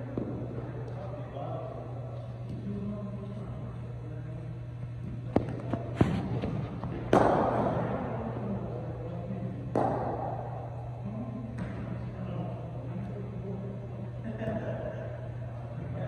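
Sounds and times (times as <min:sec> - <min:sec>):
bat striking ball with echoing crack: 0:00.1 - 0:01.0, 0:05.1 - 0:08.7, 0:09.6 - 0:12.0.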